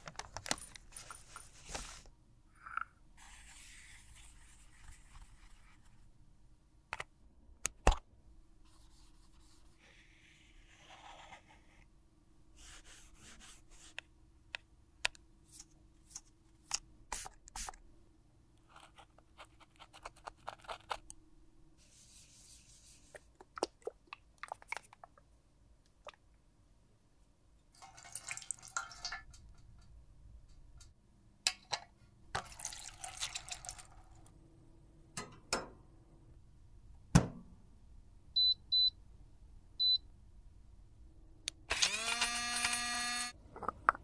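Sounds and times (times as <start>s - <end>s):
water splashing in tray: 27.8s - 29.2s.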